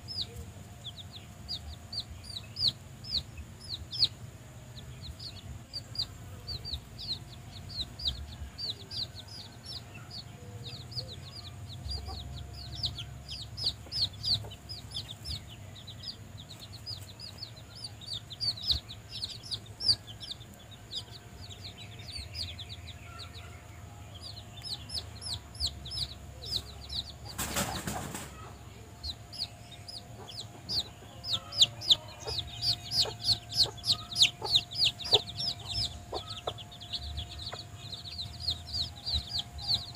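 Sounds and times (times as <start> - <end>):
chicks peeping: 0.0 - 39.9
flutter of wings: 27.3 - 28.4.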